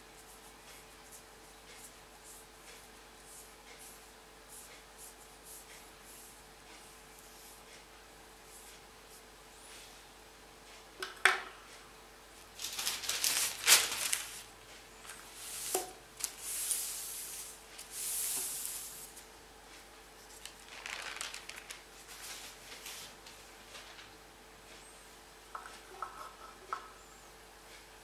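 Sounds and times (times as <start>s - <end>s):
paper rustling and crinkling: 12.6s - 16.9s, 20.2s - 24.2s.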